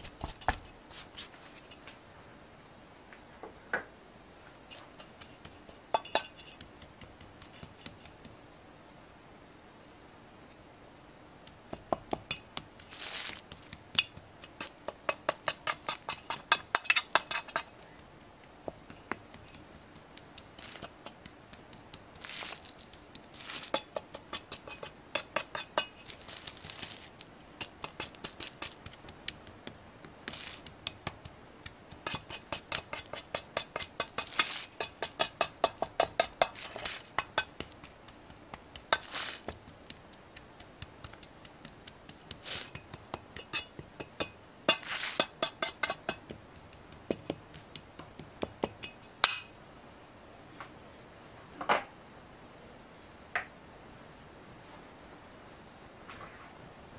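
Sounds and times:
metal spoon scraping metal pan: 6.0 - 6.6, 14.6 - 17.7, 23.4 - 26.0, 32.0 - 37.5, 43.4 - 43.7, 44.7 - 46.2.

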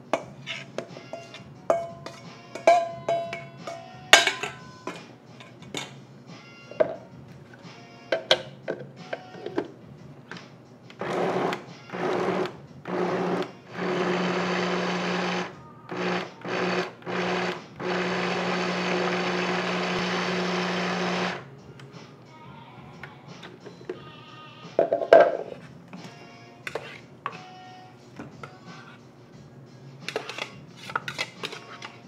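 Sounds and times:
electric chopper motor: 11.0 - 21.4.

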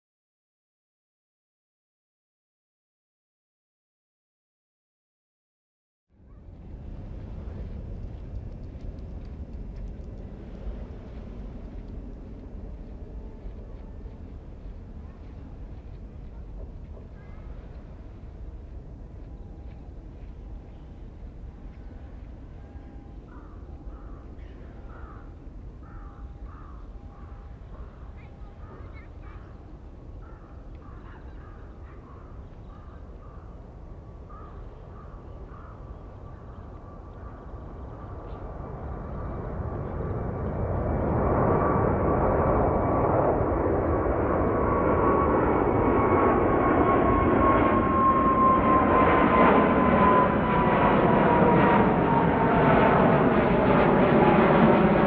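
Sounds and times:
jet engines roaring: 38.1 - 55.0.

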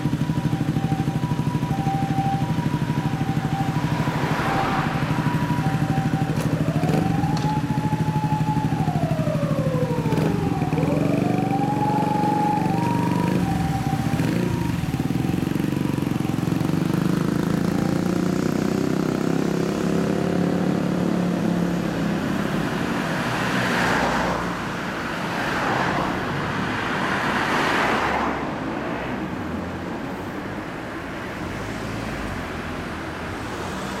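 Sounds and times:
motorcycle engines revving: 0.0 - 28.0
street traffic: 0.0 - 34.0.

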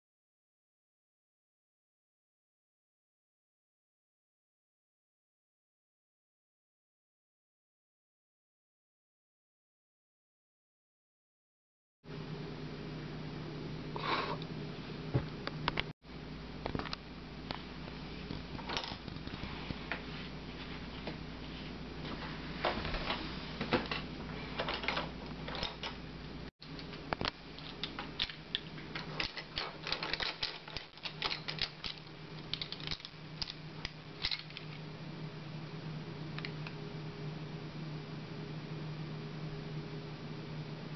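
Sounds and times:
steady low hum: 12.1 - 40.9.

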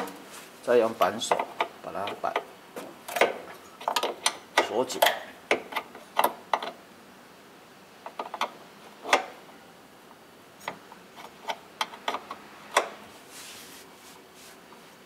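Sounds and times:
metal wrench clicking on bolt: 3.1 - 6.8.

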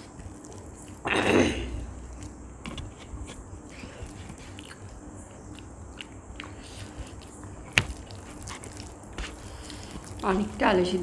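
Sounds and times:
chewing and mouth clicks: 0.0 - 1.1, 3.6 - 10.5
fingers squishing rice: 3.1 - 10.5.

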